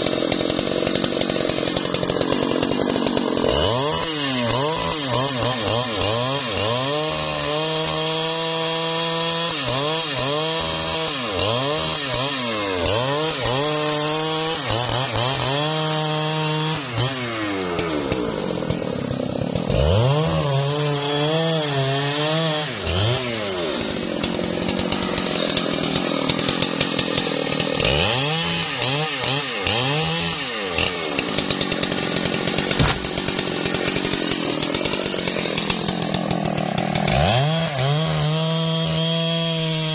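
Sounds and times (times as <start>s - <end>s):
chainsaw revving: 0.0s - 39.9s
chain cutting into wood: 9.5s - 39.3s.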